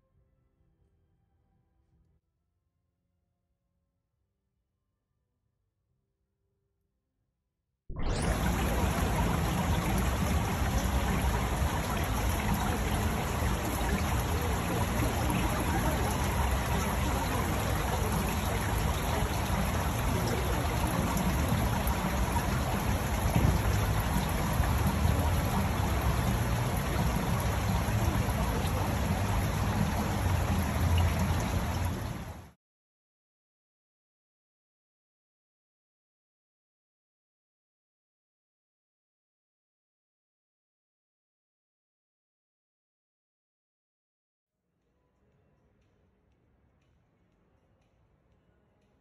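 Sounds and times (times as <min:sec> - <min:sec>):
low rumble: 0:07.9 - 0:32.4.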